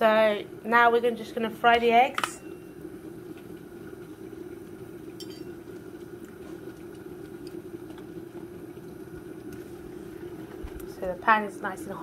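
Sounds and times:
low kitchen hum: 0.0 - 12.0
cookware clinking: 5.2 - 5.6.

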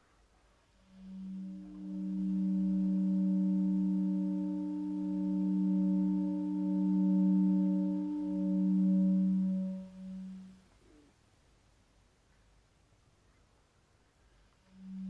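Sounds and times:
steady tonal drone: 0.9 - 10.6
pulsing middle tone: 1.0 - 10.5.

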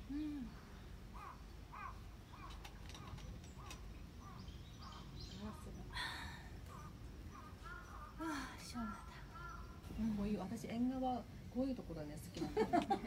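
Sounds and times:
crows cawing: 1.2 - 5.7, 6.7 - 9.9.

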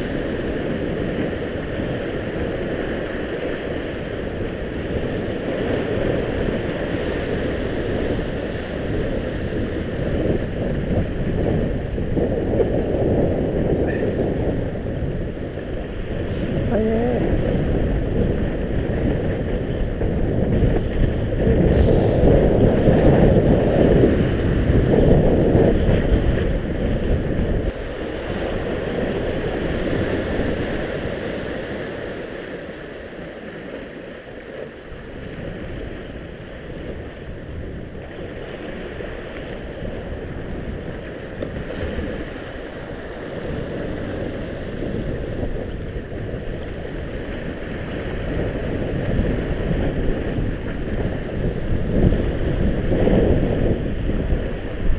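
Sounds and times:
waves breaking on rocks: 0.0 - 54.9
wind buffeting microphone: 0.0 - 54.9.

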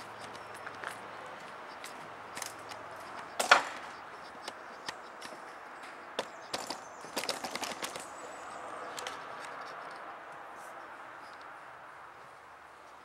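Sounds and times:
scattered clicks: 0.0 - 10.1.

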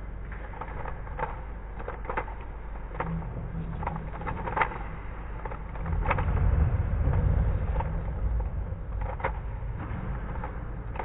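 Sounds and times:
low rumble: 2.4 - 11.0.

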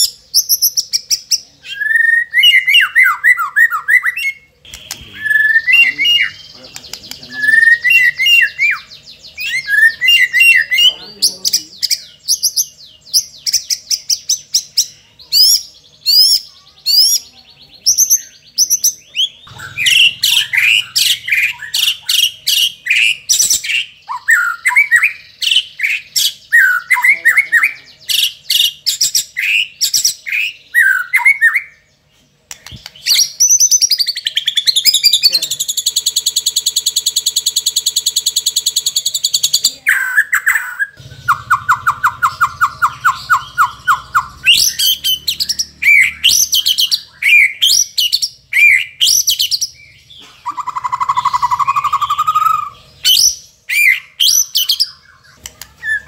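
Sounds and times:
bird singing: 0.0 - 56.0.

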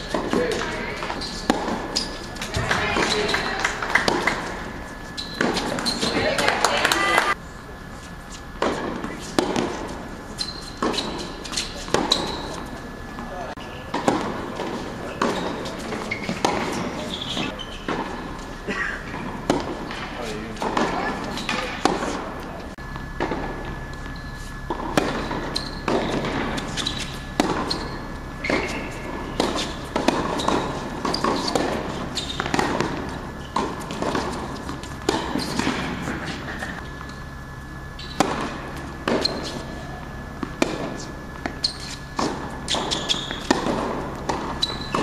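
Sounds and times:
rackets hitting tennis ball: 0.0 - 7.4, 8.3 - 45.0
ball bouncing: 0.1 - 4.6, 22.9 - 37.2, 40.4 - 45.0.

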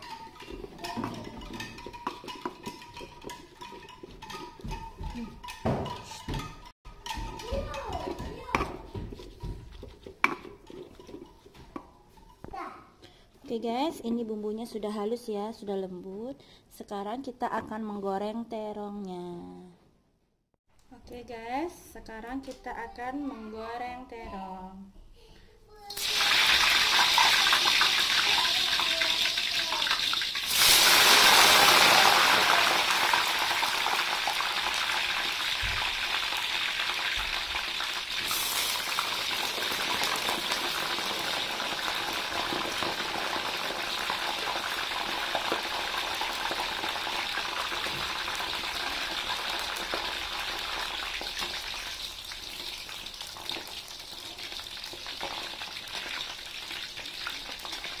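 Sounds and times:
eggplant deep-frying in oil: 25.8 - 58.0.

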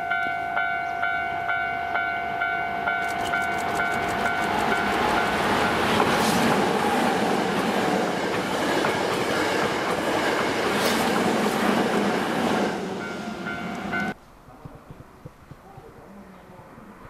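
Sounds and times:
electric train passing: 0.0 - 14.2
wheels clicking over rail joints: 2.9 - 7.0.

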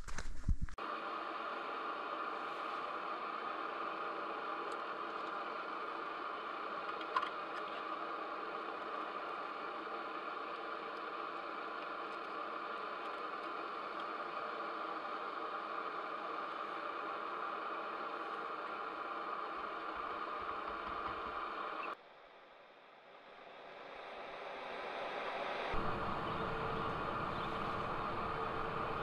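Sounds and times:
drone motors whirring: 25.8 - 29.0.

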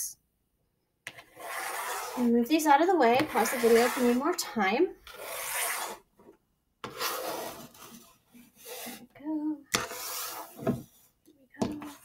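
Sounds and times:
cards scraping on tabletop: 1.1 - 2.3, 3.1 - 4.4, 5.0 - 9.1, 9.7 - 11.1.

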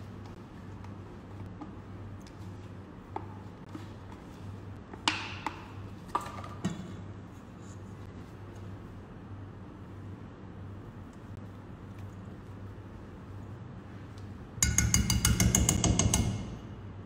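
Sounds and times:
steady low hum: 0.0 - 17.0
spatula tapping metal bowl: 14.6 - 16.6.

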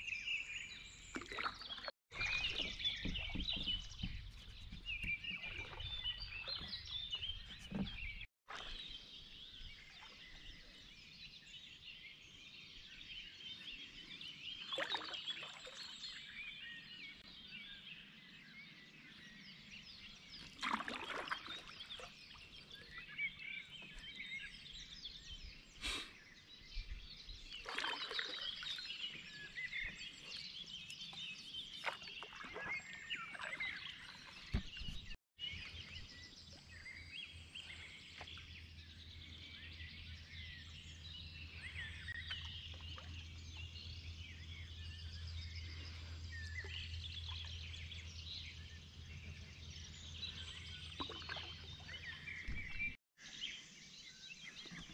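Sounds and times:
songbirds chirping and trilling: 0.0 - 54.9
water splashing: 1.0 - 9.0, 14.7 - 16.0, 20.4 - 22.9, 27.5 - 30.2, 30.9 - 35.2, 50.8 - 53.0.

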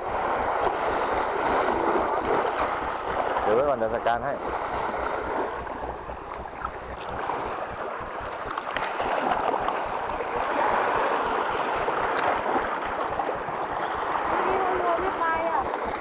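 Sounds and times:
waves splashing against rocks: 0.0 - 16.0.

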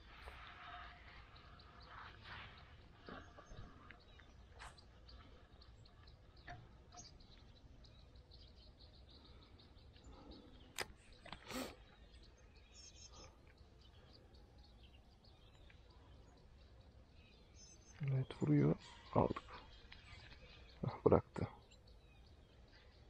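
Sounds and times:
faint bird chirps: 0.0 - 23.0
sharp clicks: 10.7 - 11.6.

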